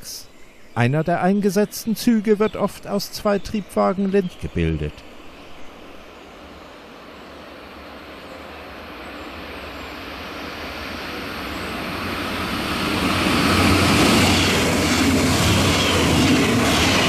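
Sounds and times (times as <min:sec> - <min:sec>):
diesel train engine drone: 0:00.8 - 0:17.0
wheels on rails: 0:10.7 - 0:17.0.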